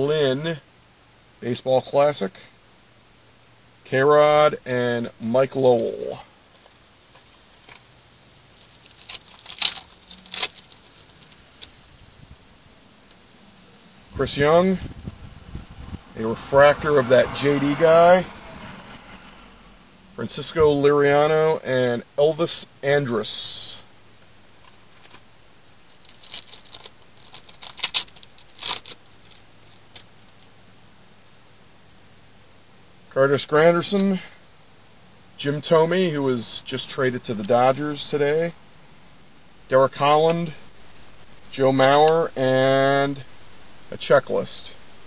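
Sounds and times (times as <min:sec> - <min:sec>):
card pack rustling and crinkling: 0:08.6 - 0:11.8, 0:25.9 - 0:30.5.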